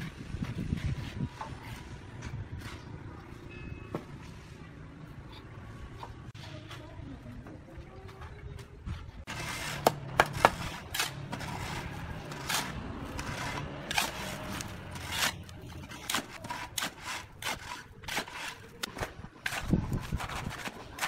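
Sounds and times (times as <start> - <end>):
shovel scraping wet concrete: 9.3 - 21.0.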